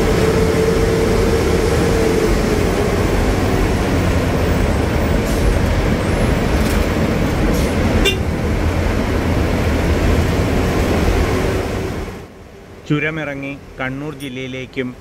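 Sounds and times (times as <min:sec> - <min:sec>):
bus engine and road noise: 0:00.0 - 0:15.0
horn toot: 0:08.0 - 0:08.3.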